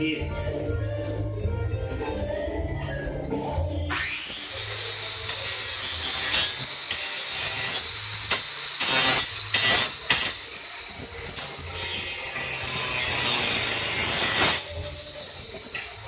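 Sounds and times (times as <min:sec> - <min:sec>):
angle grinder whining: 0:03.9 - 0:16.0.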